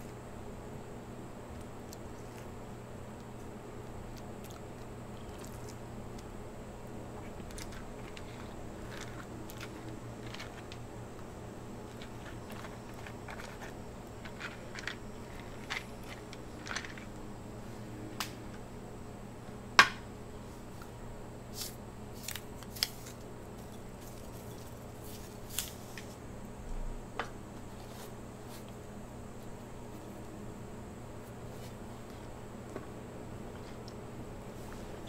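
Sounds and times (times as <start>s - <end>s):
low steady hum: 0.0s - 35.0s.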